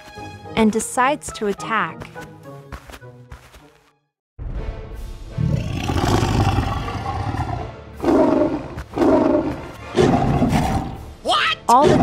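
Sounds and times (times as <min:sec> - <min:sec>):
background music: 0:00.0 - 0:12.0
tiger roaring: 0:05.4 - 0:11.0.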